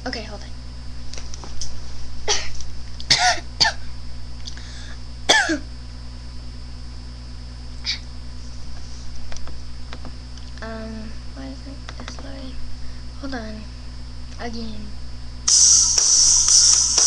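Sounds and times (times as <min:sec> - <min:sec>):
low electrical hum: 0:00.0 - 0:17.0
girl coughing: 0:02.2 - 0:03.9, 0:05.3 - 0:05.7.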